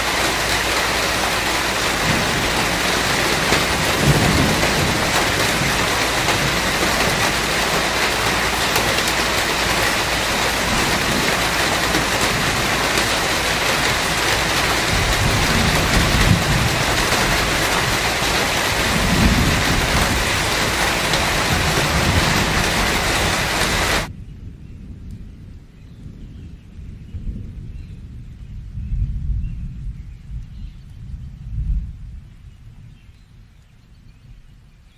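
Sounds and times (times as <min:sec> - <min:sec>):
thunder rolling: 0:00.0 - 0:25.7
steady rain: 0:00.0 - 0:34.9.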